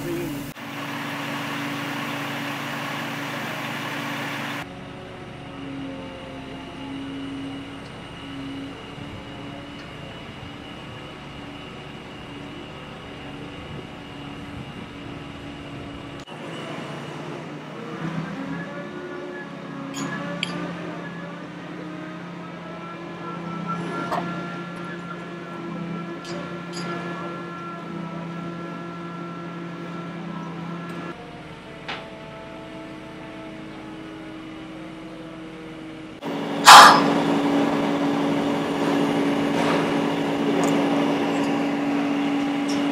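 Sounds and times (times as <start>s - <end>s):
crane diesel engine running: 0.0s - 42.9s
thin high whine: 36.2s - 38.4s
brief sharp sound: 36.6s - 37.3s.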